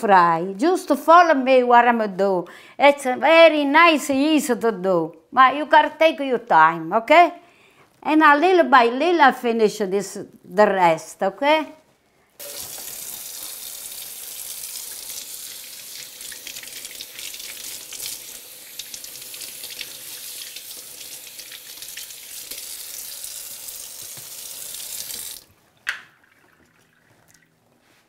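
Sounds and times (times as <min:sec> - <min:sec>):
faucet running into sink: 0:12.4 - 0:27.4.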